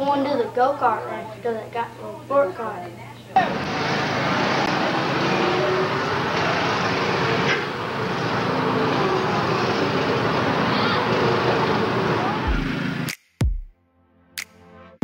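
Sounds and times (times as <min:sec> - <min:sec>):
go-kart engines droning: 0:03.4 - 0:13.1.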